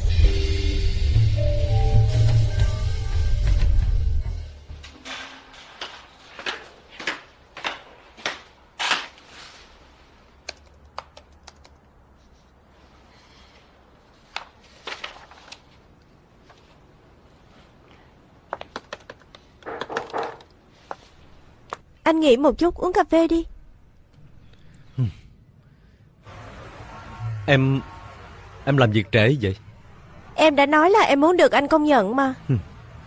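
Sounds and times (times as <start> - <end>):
high heels clicking on hard floor: 5.8 - 8.5
laptop keyboard typing: 10.4 - 11.9, 18.6 - 20.5.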